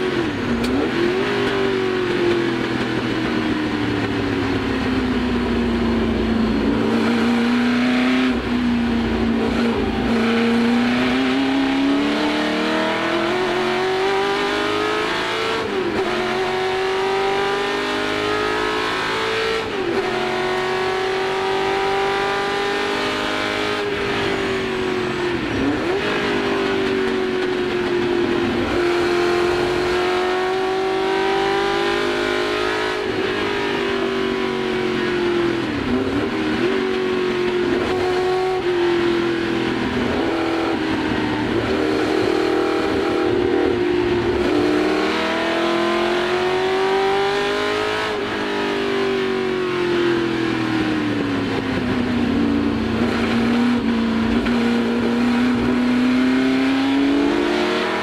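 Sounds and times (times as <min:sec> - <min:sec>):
racing car engine: 0:00.0 - 0:58.0.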